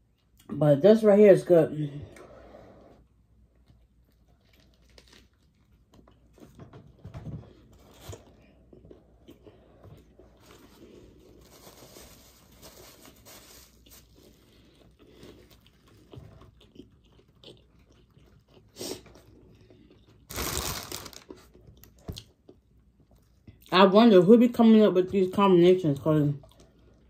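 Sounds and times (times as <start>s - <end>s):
crunchy chewing: 3.5s - 6.4s, 13.8s - 23.7s.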